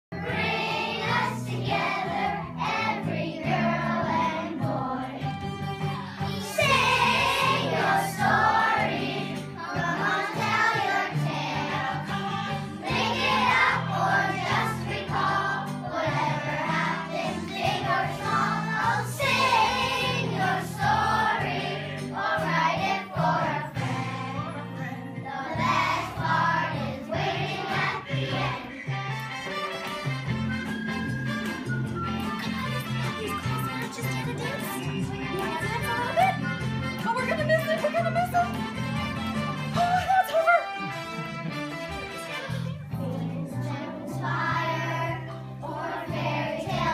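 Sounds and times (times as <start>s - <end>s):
voices singing: 0.2s - 5.3s, 6.2s - 29.2s, 42.9s - 46.9s.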